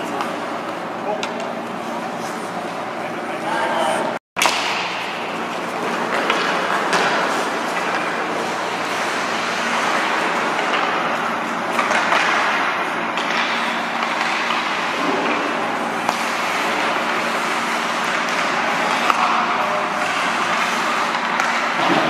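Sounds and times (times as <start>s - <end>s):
hockey sticks and puck clacking: 4.4s - 22.0s.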